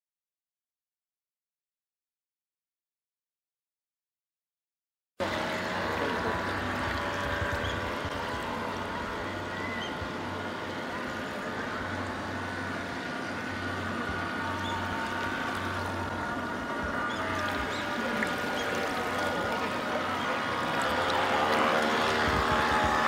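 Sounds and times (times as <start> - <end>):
bow wash on water: 5.2 - 23.0
model boat motor: 5.2 - 23.0.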